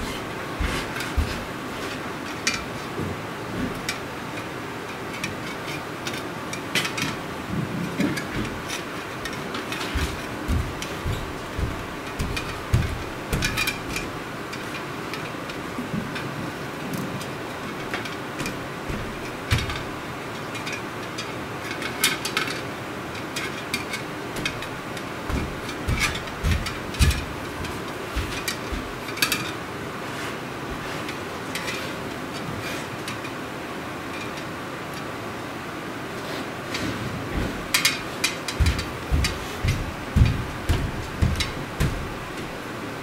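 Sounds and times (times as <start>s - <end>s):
dehumidifier running: 0.0s - 43.0s
metal clicks and knocks: 8.0s - 16.3s, 17.2s - 22.6s, 23.2s - 29.6s, 37.4s - 42.6s.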